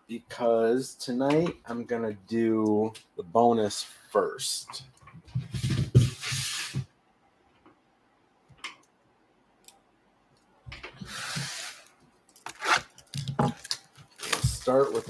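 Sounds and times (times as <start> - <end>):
cardboard rustling and scraping: 12.5 - 12.9, 13.5 - 15.0.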